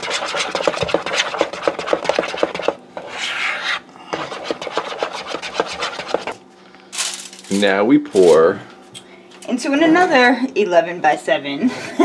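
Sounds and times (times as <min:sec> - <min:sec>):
utensil scraping a bowl: 0:00.0 - 0:06.4.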